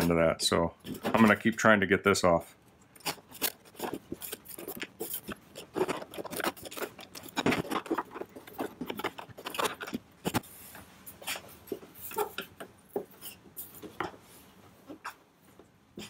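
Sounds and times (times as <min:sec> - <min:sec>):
hand tools clicking and scraping plastic: 0:00.8 - 0:01.6, 0:02.8 - 0:14.2.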